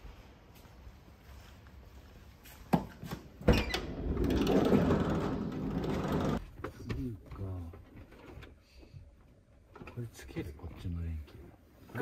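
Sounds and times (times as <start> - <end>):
rustling noise: 0.0 - 3.1
sliding door clunk and rolling: 3.4 - 6.4.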